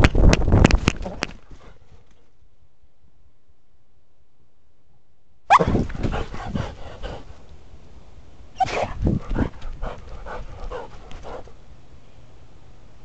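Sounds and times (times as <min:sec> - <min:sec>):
thumps and rustling of running dog: 0:05.7 - 0:06.8.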